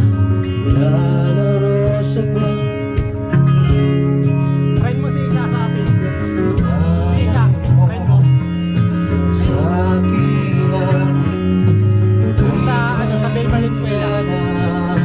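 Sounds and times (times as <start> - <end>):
man singing into microphone: 0.0 - 3.2, 4.8 - 8.5, 9.1 - 15.0
acoustic guitar: 0.0 - 15.0
electric bass guitar: 0.0 - 15.0
electronic keyboard: 0.0 - 15.0.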